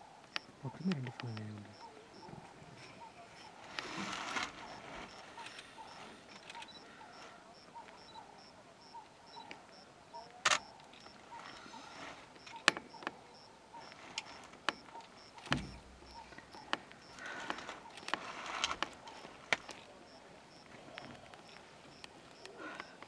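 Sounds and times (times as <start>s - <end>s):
sharp clicks: 0.2s - 1.9s, 6.3s - 6.8s, 9.3s - 11.2s, 13.8s - 23.0s
faint repeating chirp: 4.7s - 17.2s
low thump: 15.4s - 16.4s.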